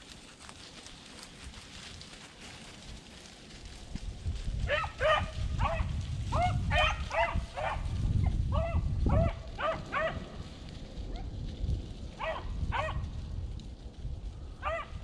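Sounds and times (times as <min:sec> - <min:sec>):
wind buffeting microphone: 0:01.3 - 0:15.0
dogs baying: 0:04.7 - 0:07.9, 0:08.5 - 0:10.3, 0:12.2 - 0:13.0, 0:14.6 - 0:15.0.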